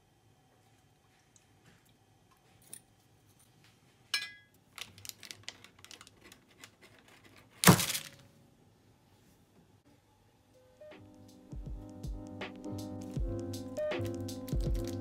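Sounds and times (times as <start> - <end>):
knife scraping frozen butter: 5.6 - 7.6.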